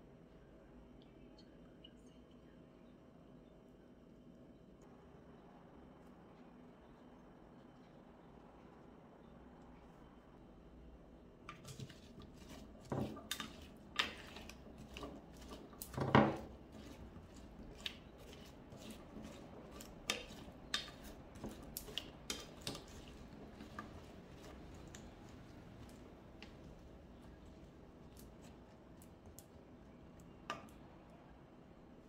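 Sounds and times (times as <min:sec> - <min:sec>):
spatula scraping potatoes in a dish: 0:11.5 - 0:28.8.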